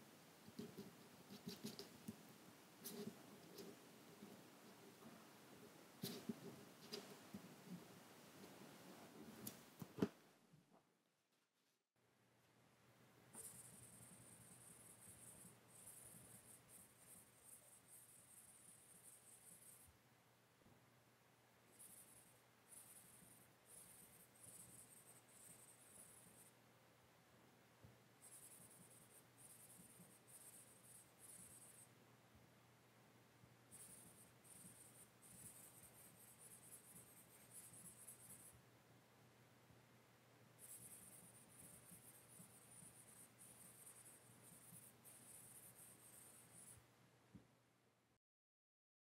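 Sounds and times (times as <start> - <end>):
hissy scratching strokes: 0.4 - 9.6
steady low hum: 12.0 - 48.1.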